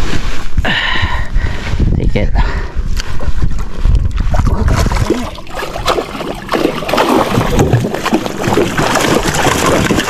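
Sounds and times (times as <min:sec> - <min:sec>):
wind on microphone: 0:00.0 - 0:10.0
water splashing against hull: 0:03.1 - 0:10.0
fish thrashing at surface: 0:04.3 - 0:10.0.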